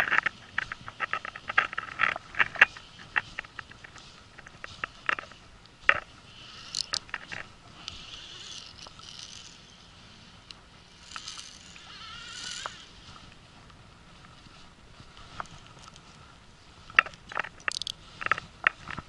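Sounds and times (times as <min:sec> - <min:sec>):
fishing reel drag buzzing: 0:00.0 - 0:13.3, 0:17.3 - 0:18.5
sharp clicks: 0:17.0 - 0:19.0.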